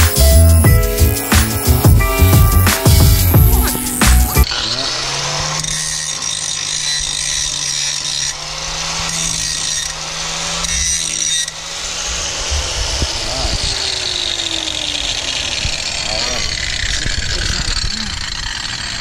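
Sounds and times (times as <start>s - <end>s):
angle grinder grinding metal: 0.0s - 19.0s.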